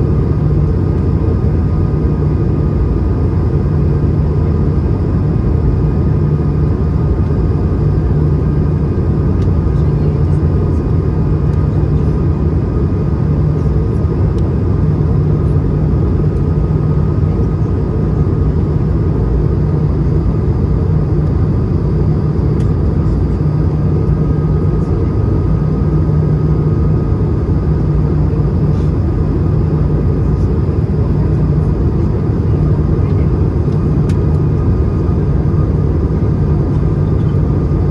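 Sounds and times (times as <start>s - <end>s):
aircraft cabin engine rumble: 0.0s - 37.9s.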